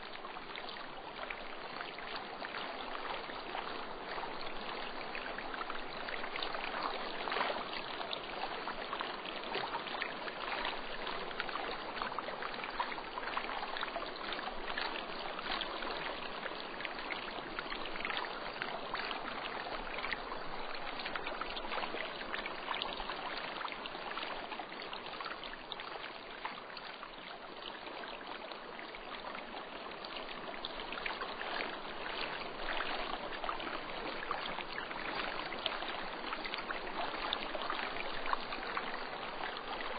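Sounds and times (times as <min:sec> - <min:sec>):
small splashes and trickles: 0:00.0 - 0:39.9.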